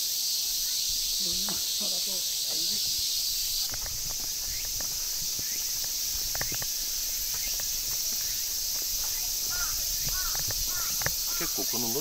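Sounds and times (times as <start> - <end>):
cicadas chorus: 0.0 - 12.0.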